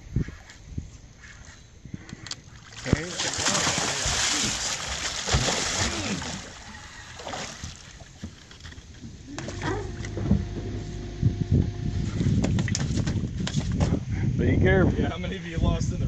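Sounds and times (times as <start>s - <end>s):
water splashing around boat: 2.3s - 14.0s
steady low hum: 9.3s - 12.8s.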